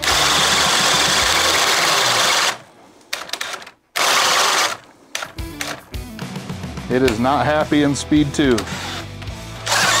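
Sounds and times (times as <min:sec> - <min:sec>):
hammer drill boring through wood: 0:00.0 - 0:02.6, 0:03.3 - 0:04.8, 0:08.6 - 0:10.0.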